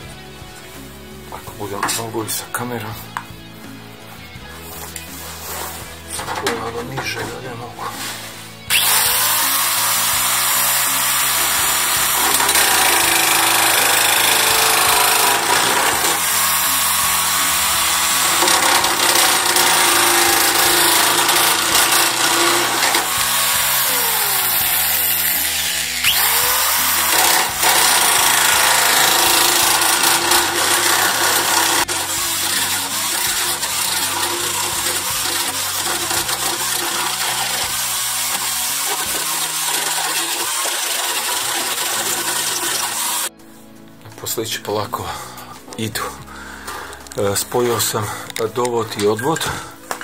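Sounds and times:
electric drill cutting sheet metal: 7.9 - 43.4.

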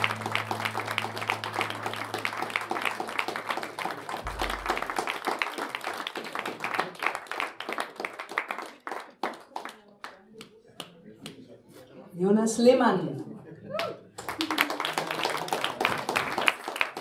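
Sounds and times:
low held note: 0.0 - 5.2
audience clapping: 0.0 - 11.4, 13.8 - 17.0.

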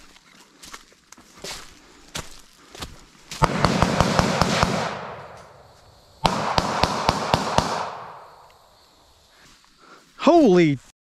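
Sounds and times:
rapid suppressed rifle fire: 3.4 - 5.6, 6.2 - 8.3
gunshot echo in woods: 3.4 - 8.7.

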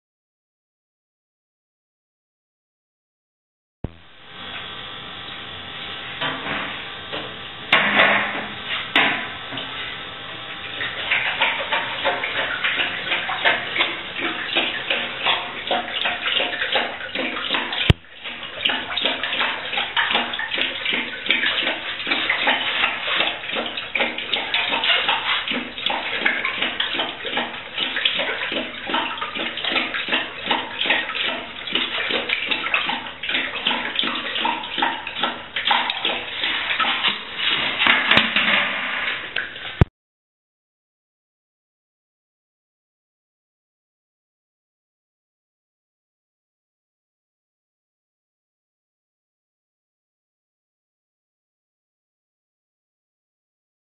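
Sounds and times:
dog lapping water: 10.6 - 39.9.

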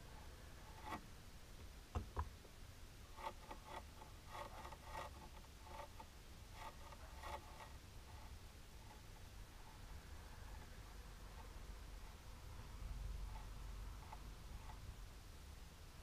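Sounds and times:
nail polish brush scratching: 0.1 - 1.0, 3.1 - 15.0.

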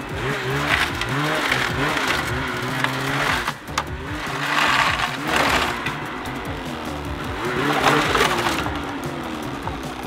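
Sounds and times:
snowmobile engine revving: 0.0 - 10.0.

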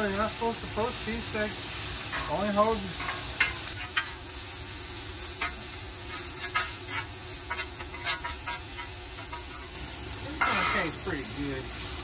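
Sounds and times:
meat sizzling on griddle: 0.0 - 12.0.

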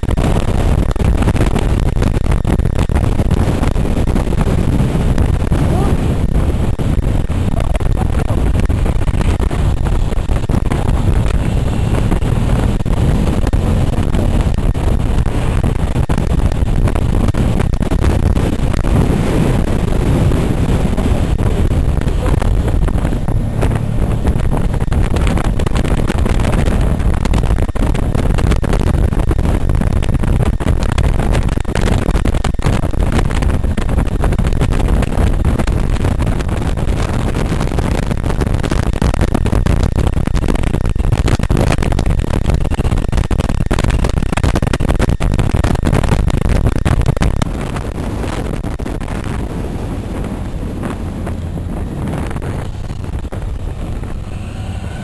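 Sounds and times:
motorcycle engine drone: 0.0 - 55.0
wind rushing on microphone: 0.0 - 55.0.

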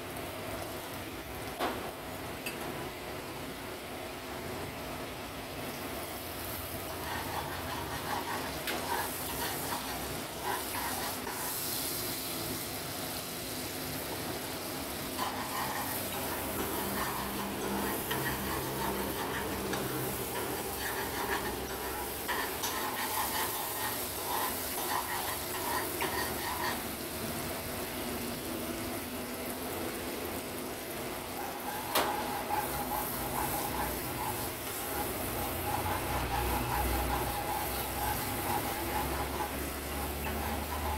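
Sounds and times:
oil sizzling in a wok: 0.0 - 40.9
metal spoon scraping a pan: 6.9 - 11.6, 15.2 - 27.0, 31.4 - 40.9.

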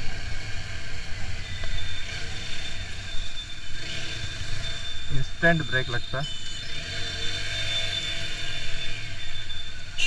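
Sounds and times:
motorcycle engine and wind: 0.0 - 5.4
thin high tone: 1.4 - 10.0.

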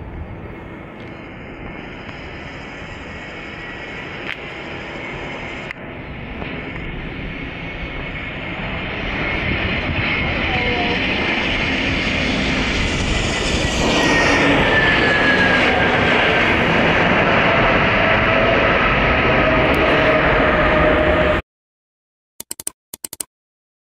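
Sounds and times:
jet engines rushing: 0.0 - 21.4.

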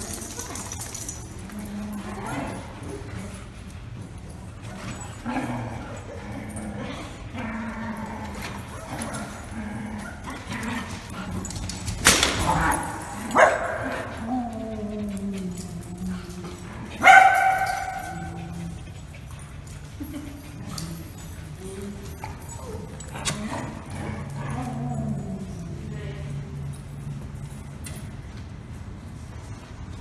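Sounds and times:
dogs barking in play: 0.0 - 27.7.

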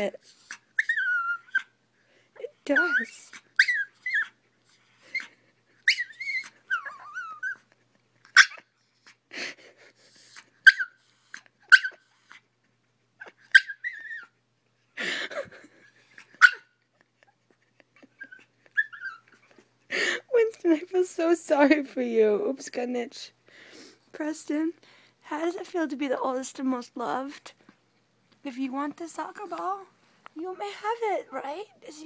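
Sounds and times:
dog whining: 0.0 - 1.8, 2.6 - 9.2, 10.2 - 12.4, 13.2 - 14.4, 16.0 - 19.6.

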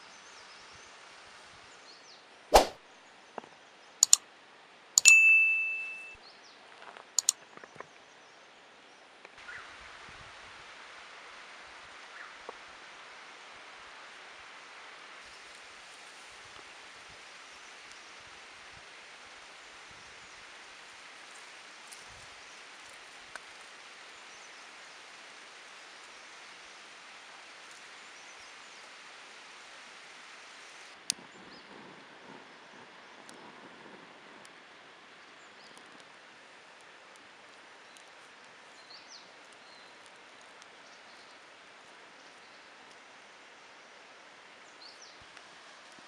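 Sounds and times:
outdoor ambient hiss: 0.0 - 46.0
faint light clicks: 3.4 - 4.2, 6.8 - 8.0
wood fire crackling: 35.5 - 43.2.

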